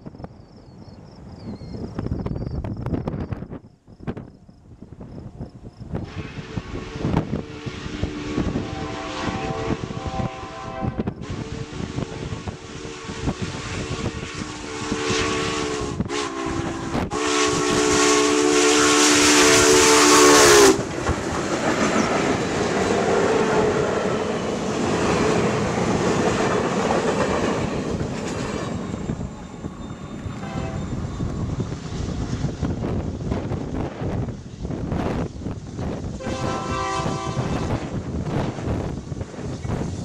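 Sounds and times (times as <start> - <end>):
steam whistle blasts: 6.1 - 20.8, 30.2 - 31.6, 36.2 - 38.0
train cars rumbling and clattering: 19.4 - 40.0.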